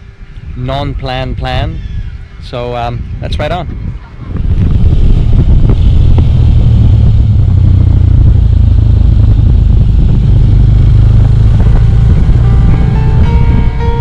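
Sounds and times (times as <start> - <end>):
motorcycle engine running: 4.3 - 14.0.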